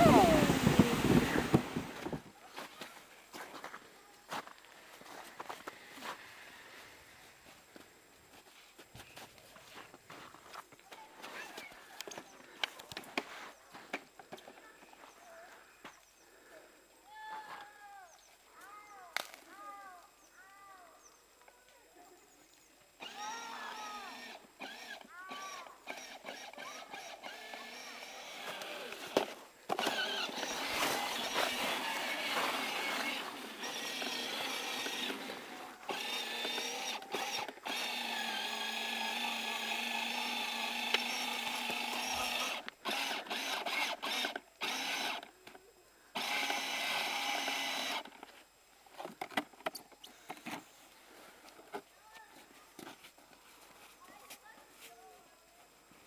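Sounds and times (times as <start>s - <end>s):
electric motor whirring: 23.0s - 45.4s, 46.1s - 48.2s.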